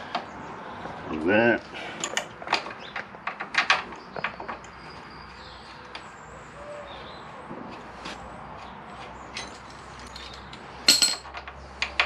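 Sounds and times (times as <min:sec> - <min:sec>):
metal parts clicking and scraping: 0:02.0 - 0:02.3, 0:09.3 - 0:12.0
ringing metallic clatter: 0:09.3 - 0:11.4.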